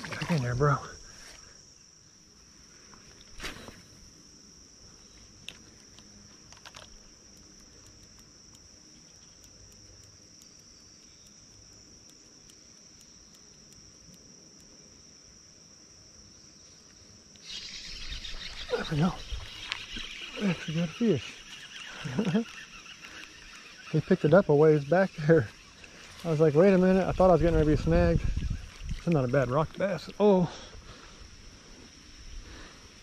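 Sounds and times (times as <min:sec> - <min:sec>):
insects droning: 0:00.0 - 0:33.0
faint ticks: 0:05.2 - 0:15.0, 0:19.4 - 0:27.1.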